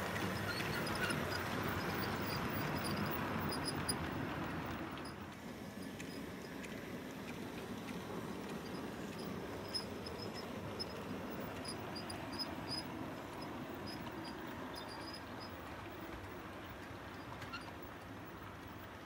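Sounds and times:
model train wheels rumbling: 0.0s - 19.0s
faint high squeaks: 0.3s - 4.1s, 8.7s - 16.2s, 17.1s - 18.0s.

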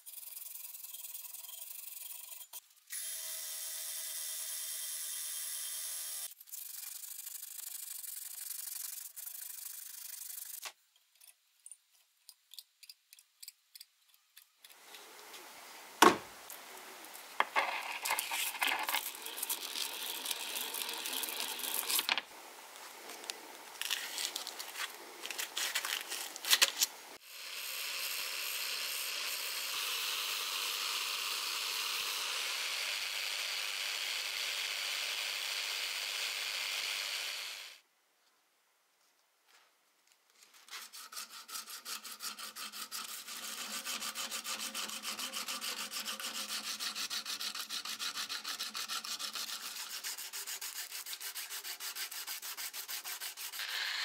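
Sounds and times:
blade rubbing and scraping: 17.2s - 22.1s, 22.8s - 27.0s, 40.6s - 54.0s
angle grinder grinding metal: 17.4s - 22.2s, 23.0s - 37.7s, 53.4s - 54.0s.

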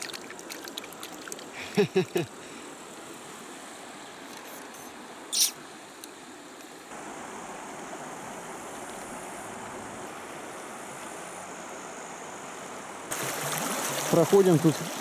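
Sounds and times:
sharp hiss: 4.4s - 5.6s
river water rushing: 6.9s - 15.0s.

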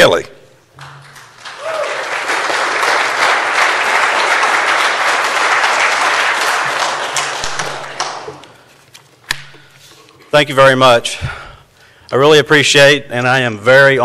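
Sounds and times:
audience applauding: 0.8s - 8.5s.

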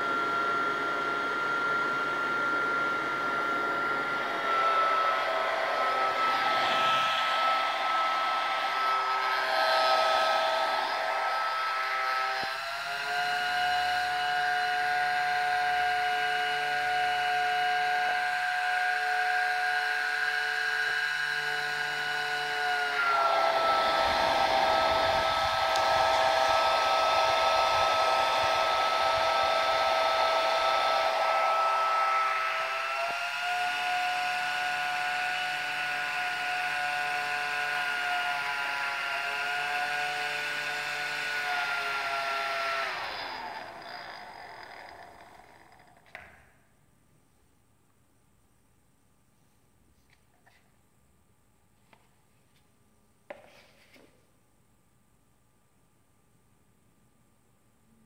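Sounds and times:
small fan whining: 0.0s - 46.7s.

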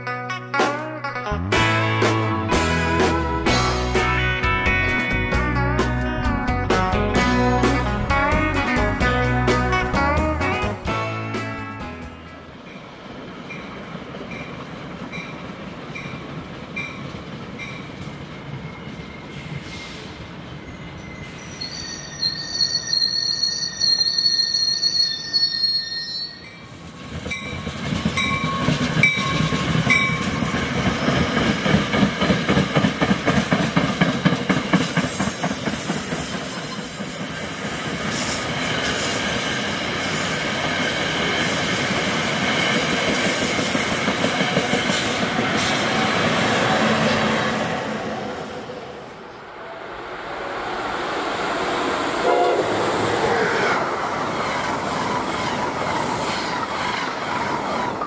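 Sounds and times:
train wheels rushing on rail: 12.2s - 25.5s, 26.4s - 58.0s.

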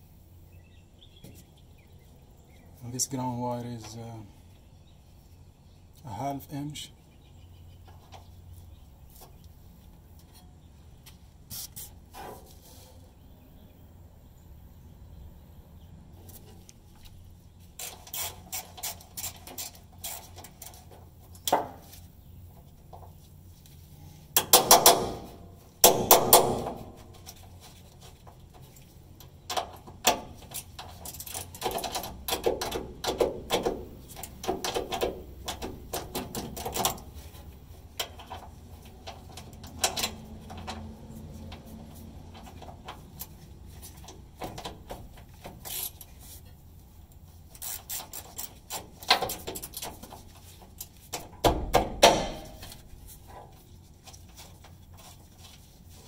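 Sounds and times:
metal clinks and rattles: 28.3s - 37.2s
ratchet wrench clicking: 47.6s - 48.8s
metal clattering: 51.2s - 52.9s.

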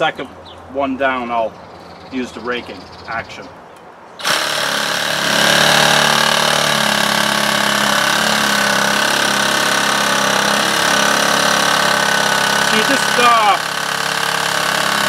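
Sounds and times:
reciprocating saw cutting wood: 4.2s - 15.0s.

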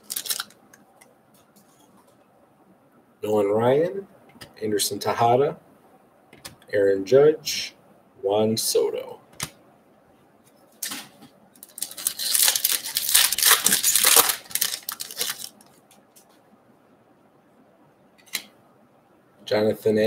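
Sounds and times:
foil wrapper tearing and crinkling: 0.0s - 0.6s, 11.6s - 15.6s.

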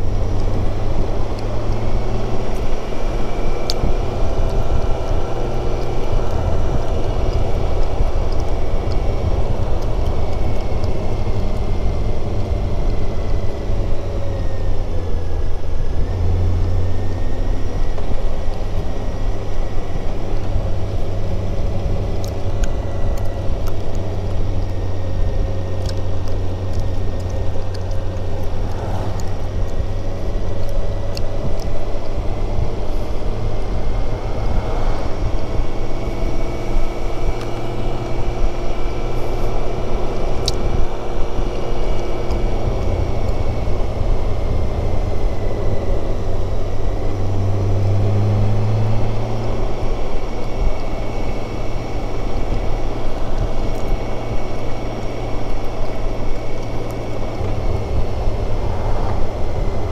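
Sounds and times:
motorcycle engine humming: 0.0s - 59.9s
road noise: 0.0s - 59.9s
wind rushing: 28.2s - 31.6s, 32.2s - 36.8s, 57.3s - 59.9s.

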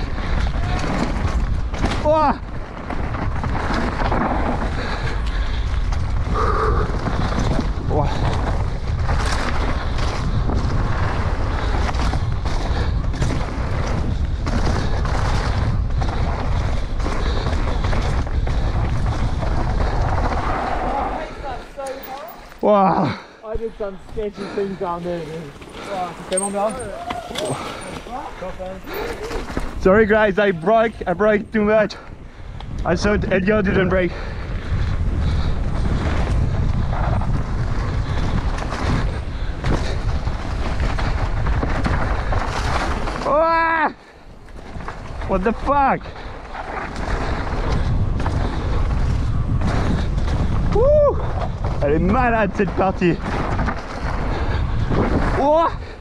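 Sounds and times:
bike clattering on bumps: 0.0s - 6.3s, 7.0s - 22.6s, 23.8s - 31.6s, 34.5s - 43.5s, 44.4s - 56.0s
tyres on loose dirt: 0.0s - 56.0s
wind buffeting microphone: 0.0s - 56.0s
tyres roaring on dirt: 24.0s - 31.8s.

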